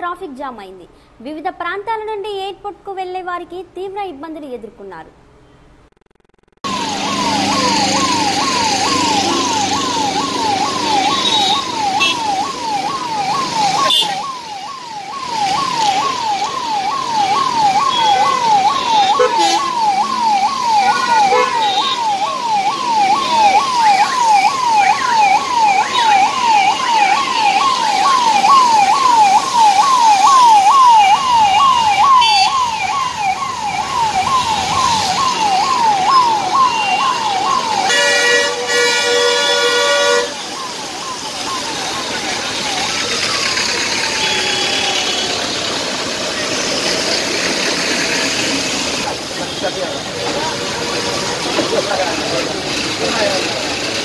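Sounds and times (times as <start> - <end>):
road traffic: 0.0 - 54.0
siren wailing: 6.6 - 49.1.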